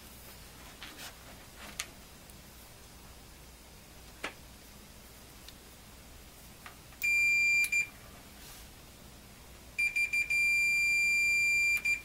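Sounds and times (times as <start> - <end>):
multimeter continuity beeps: 7.0 - 8.0, 9.8 - 12.0.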